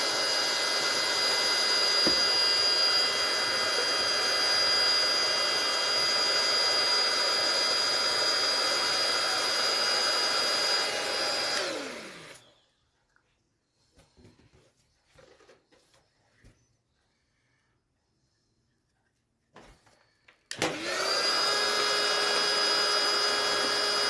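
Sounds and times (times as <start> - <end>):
electric balloon pump whining: 0.0 - 12.7, 20.5 - 24.0.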